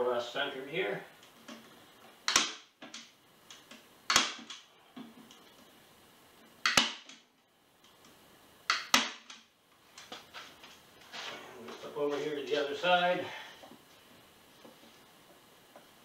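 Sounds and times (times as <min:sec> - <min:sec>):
staple gun snapping: 0:02.3 - 0:03.0, 0:04.1 - 0:04.6, 0:06.6 - 0:07.2.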